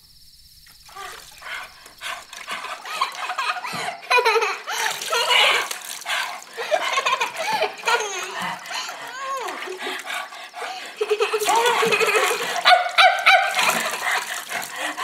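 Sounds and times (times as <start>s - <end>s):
person yelping and whining: 7.6s - 10.0s.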